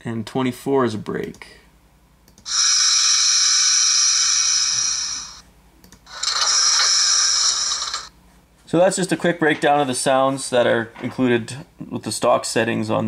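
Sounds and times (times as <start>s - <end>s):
air brake hisses: 2.5s - 5.4s.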